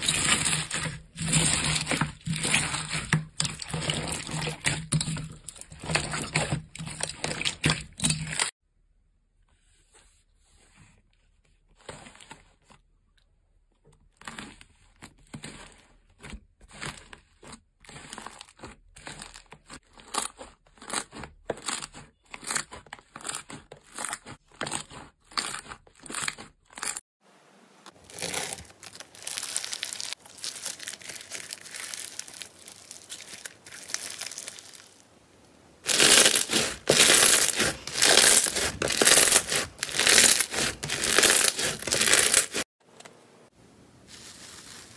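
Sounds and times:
dense slime crackling: 0.0s - 8.5s, 27.9s - 35.2s, 35.8s - 42.7s
crackly slime strokes: 0.0s - 8.6s, 27.9s - 42.7s, 44.0s - 44.9s
slime squishing: 0.0s - 8.6s, 14.0s - 27.0s, 27.9s - 35.0s, 35.8s - 42.7s.

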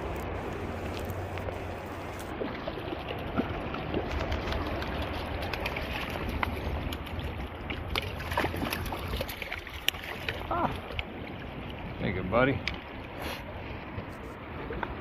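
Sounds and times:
fish thrashing splashes: 0.0s - 11.2s
creek running with low rumble: 0.0s - 15.0s.

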